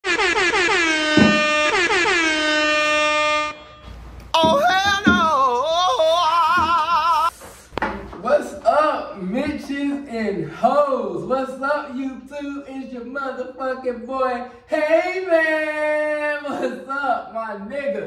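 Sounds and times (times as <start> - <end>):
horn-like blasts: 0.0 - 4.2.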